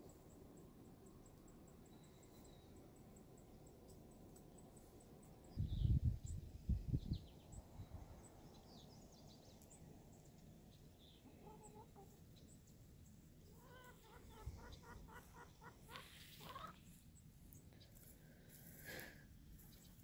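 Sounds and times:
hen clucking: 11.2 - 12.4, 13.4 - 16.9.

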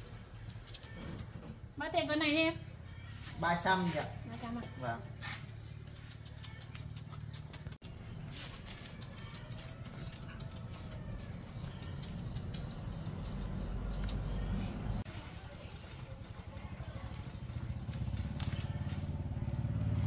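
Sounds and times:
puppy whimpering: 8.8 - 13.6.

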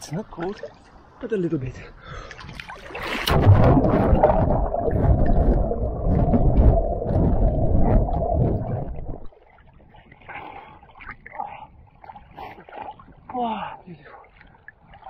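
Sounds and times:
muffled underwater churning: 2.3 - 13.4
splash into water: 2.4 - 11.4.

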